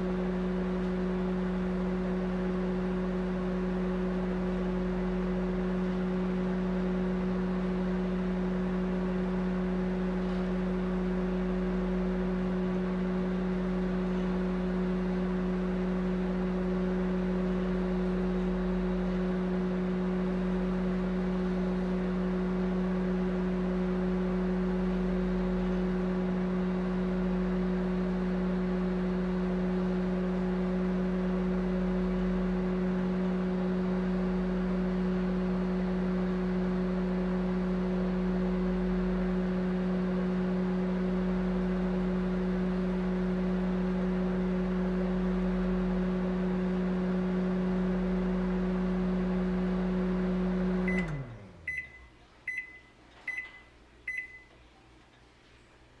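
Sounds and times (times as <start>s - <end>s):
microwave oven humming: 0.0s - 56.0s
microwave short high beeps: 50.9s - 54.5s.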